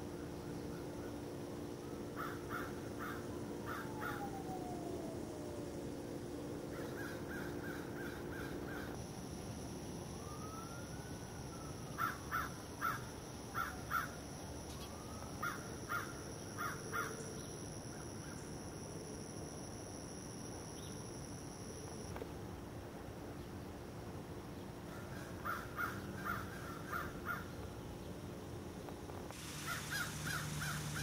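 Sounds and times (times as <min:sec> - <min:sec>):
crow cawing: 0:02.2 - 0:04.3, 0:06.7 - 0:09.0, 0:12.0 - 0:13.0, 0:24.9 - 0:27.5, 0:29.6 - 0:31.0
faint rising and falling tone: 0:03.3 - 0:11.9.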